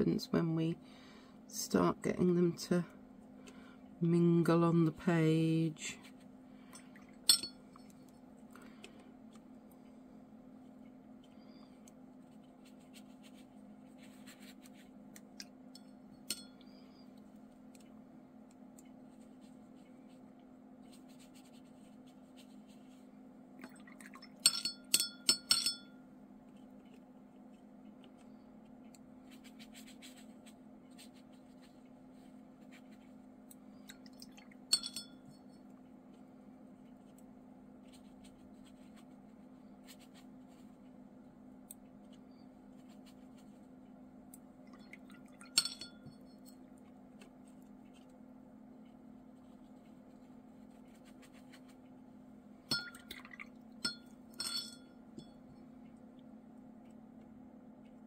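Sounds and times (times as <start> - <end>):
low steady hum: 0.0 - 58.0
paintbrush clinking glass jar: 6.8 - 7.9, 24.2 - 26.0, 34.1 - 35.6, 44.7 - 46.6, 52.7 - 55.4
brush scratching on paper: 12.2 - 15.0, 19.0 - 23.1, 29.2 - 33.3, 37.8 - 40.9, 42.3 - 43.7, 49.2 - 51.9.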